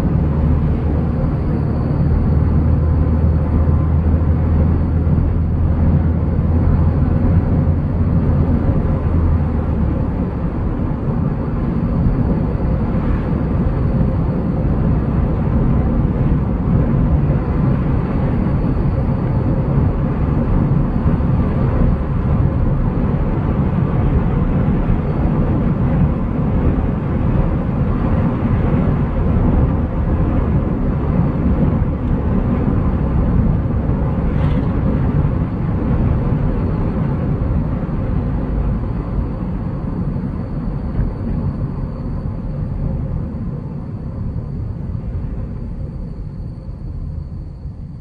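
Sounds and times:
engine and tyre rumble: 0.0 - 48.0.

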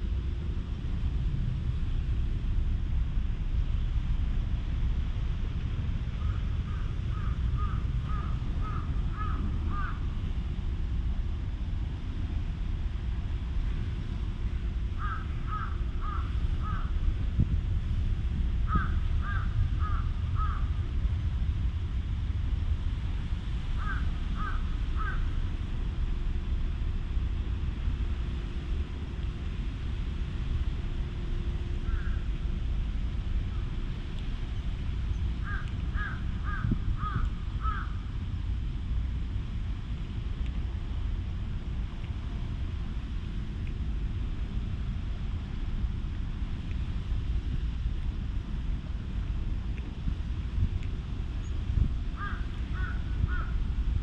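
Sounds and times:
wind rumble on microphone: 0.0 - 54.0
crow cawing: 6.7 - 10.0, 15.0 - 16.9, 18.7 - 20.7, 23.8 - 25.3, 31.9 - 32.2, 35.4 - 38.0, 52.2 - 53.6.

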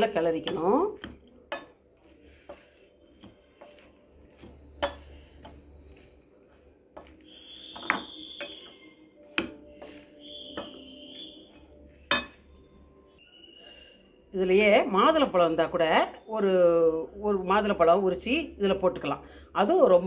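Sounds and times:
spoon knocking glass bowl: 7.0 - 11.1, 12.0 - 12.6
high-pitched whine: 7.2 - 9.2.

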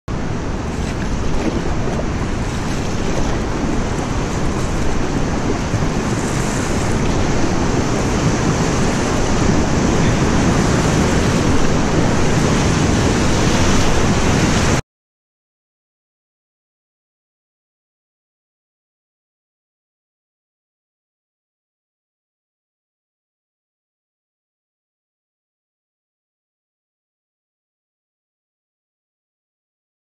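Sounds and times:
rushing whitewater roar: 0.1 - 14.8.

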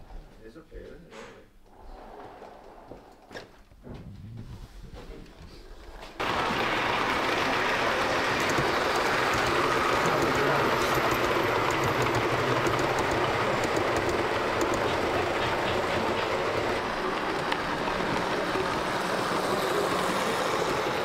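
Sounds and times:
wheels clicking over rail joints: 5.9 - 21.0
model train rumbling on track: 6.2 - 21.0.

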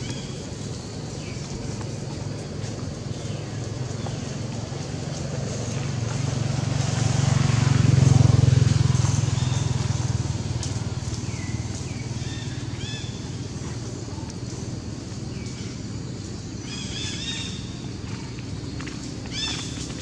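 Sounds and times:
vehicle engine hum: 0.0 - 20.0.

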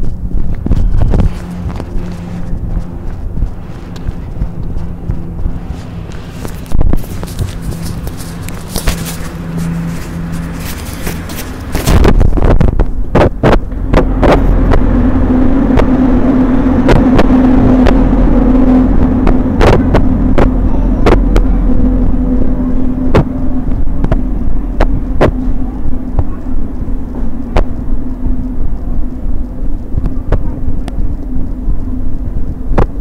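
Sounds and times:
camera handling rumble: 0.0 - 14.8.

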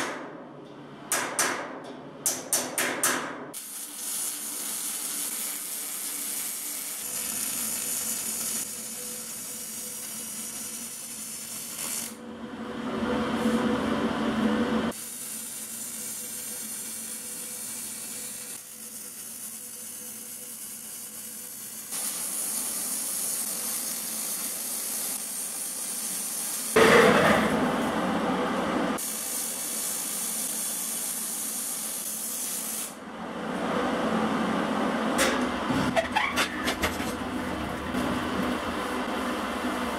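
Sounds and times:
welding arc hissing: 3.6 - 12.2, 14.9 - 26.9, 29.0 - 33.0.

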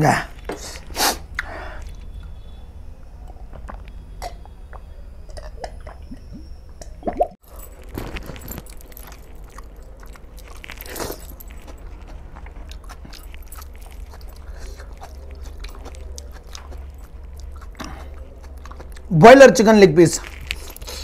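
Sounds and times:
low steady hum: 0.0 - 21.0
mouth chewing and smacking: 3.3 - 19.2, 20.2 - 21.0
fingers tearing food in curry: 7.8 - 19.1, 20.2 - 21.0.

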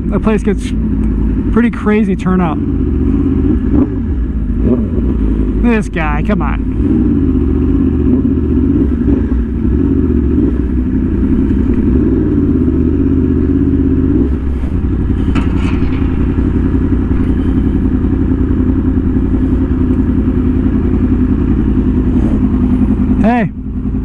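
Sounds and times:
motorbike engine running: 0.0 - 24.0
short clatter: 14.3 - 22.5.

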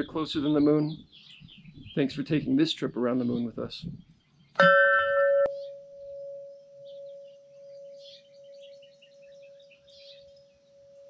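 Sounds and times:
birds chirping faintly: 0.0 - 11.0
tubular wind chime ringing: 4.6 - 11.0.

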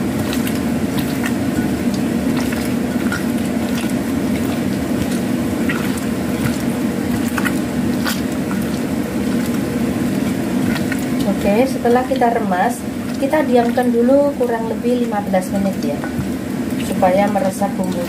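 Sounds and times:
hands squelching raw chicken: 0.0 - 11.4
steady low hum: 0.0 - 18.0.

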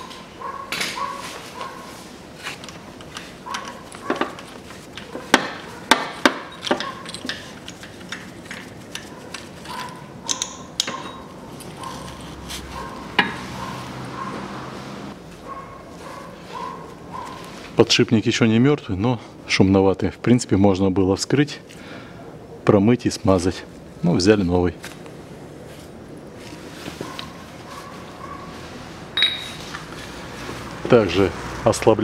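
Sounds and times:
metal tools clinking: 6.2 - 12.3, 29.2 - 29.8.

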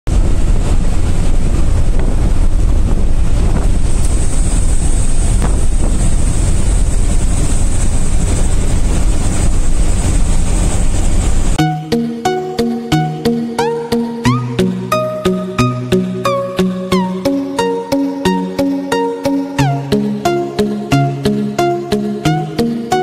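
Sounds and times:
truck cab rumble at speed: 0.1 - 11.6.

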